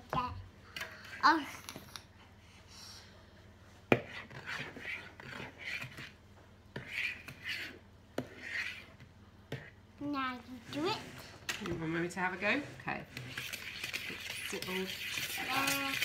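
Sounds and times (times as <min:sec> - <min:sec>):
fork scraping plastic bowl: 0:04.0 - 0:09.7, 0:12.4 - 0:16.0.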